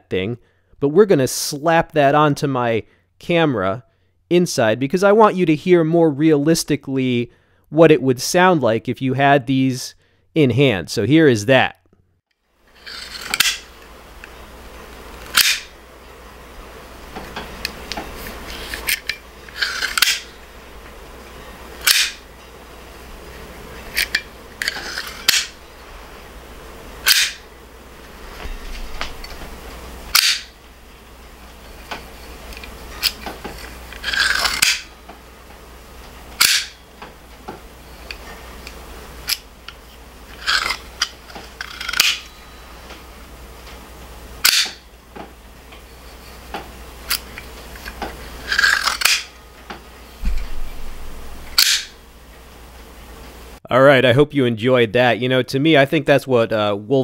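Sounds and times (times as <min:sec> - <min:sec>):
knife blades snapping metallic clacks: 0:13.2 - 0:13.6, 0:15.4 - 0:15.7, 0:18.8 - 0:20.2, 0:21.9 - 0:22.2, 0:24.0 - 0:25.5, 0:27.1 - 0:27.4, 0:30.2 - 0:30.5, 0:34.0 - 0:34.9, 0:36.4 - 0:36.8, 0:41.6 - 0:42.2, 0:44.4 - 0:44.8, 0:48.5 - 0:49.3, 0:51.6 - 0:51.9.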